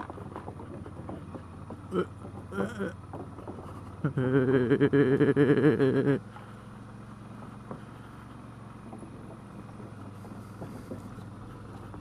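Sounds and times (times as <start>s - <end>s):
tyres clattering over wooden boards: 0.0s - 4.2s
motorcycle engine running: 0.0s - 12.0s.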